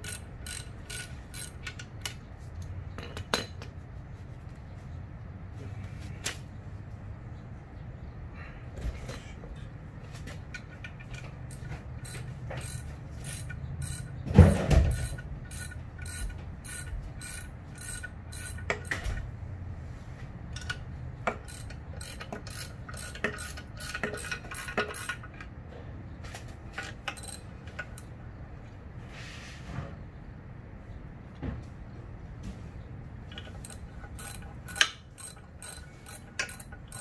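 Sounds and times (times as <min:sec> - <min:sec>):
socket ratchet clicking: 0:00.0 - 0:02.2, 0:11.5 - 0:14.2, 0:14.9 - 0:19.0, 0:20.6 - 0:25.3, 0:27.1 - 0:28.1, 0:33.4 - 0:37.0.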